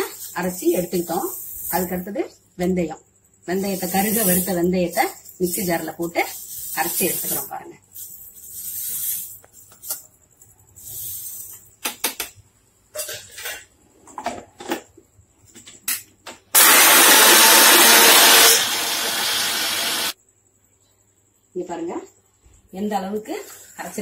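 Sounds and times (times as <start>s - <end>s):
seeds rattling into a jar: 0.0s - 2.1s, 3.6s - 10.1s
mixer grinder running: 16.6s - 20.2s.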